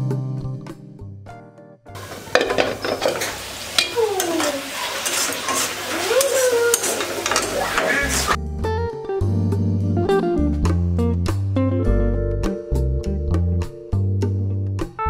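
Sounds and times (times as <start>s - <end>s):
food sizzling in a pan: 2.0s - 8.4s
metal spatula scraping pan: 2.0s - 8.4s
sliding squeaks: 2.0s - 8.4s.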